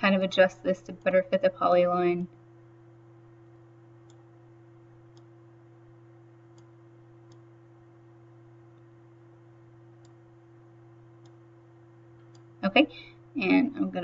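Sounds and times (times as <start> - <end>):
low background hum: 0.0 - 14.0
computer mouse clicking: 4.0 - 4.3, 5.1 - 5.3, 6.5 - 7.5, 10.0 - 10.2, 11.2 - 11.4, 12.1 - 12.5.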